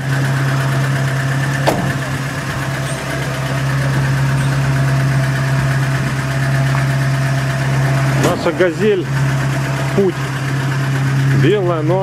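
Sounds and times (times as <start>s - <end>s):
van engine idling: 0.0s - 12.0s
car door shutting: 1.4s - 6.9s.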